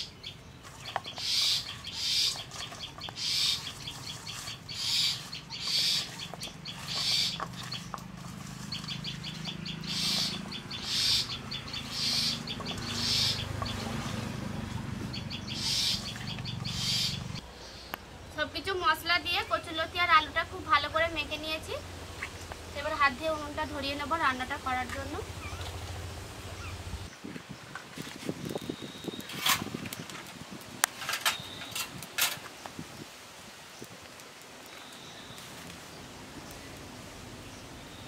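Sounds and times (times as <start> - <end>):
wet crackly squelch: 0.6 - 10.5.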